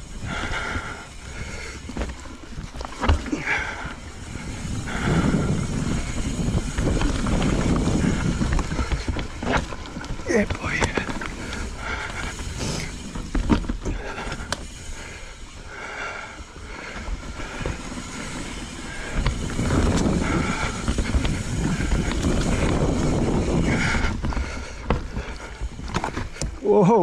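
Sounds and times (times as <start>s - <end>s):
bike rattling and knocking: 0.0s - 27.0s
bike tyres rumbling over dirt: 0.0s - 27.0s
wind on microphone: 3.9s - 13.3s, 18.8s - 26.0s.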